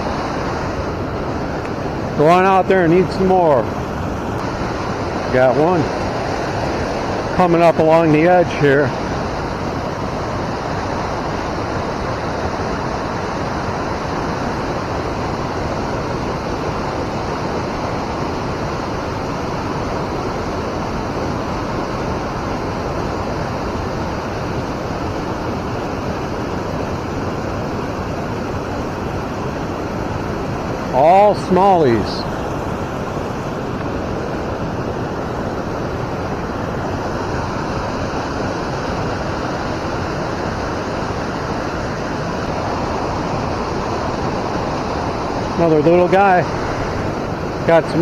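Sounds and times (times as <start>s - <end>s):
river water rushing: 0.0s - 48.0s.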